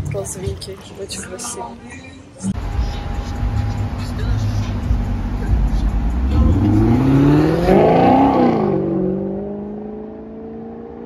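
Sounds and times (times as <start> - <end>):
sports car engine revving: 2.6 - 11.0.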